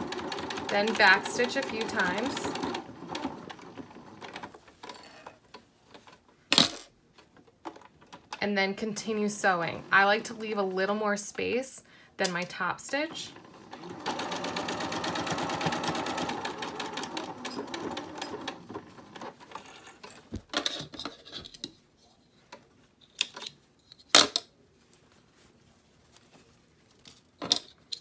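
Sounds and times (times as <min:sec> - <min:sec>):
sewing machine stitching: 0:00.0 - 0:05.4, 0:13.1 - 0:20.2.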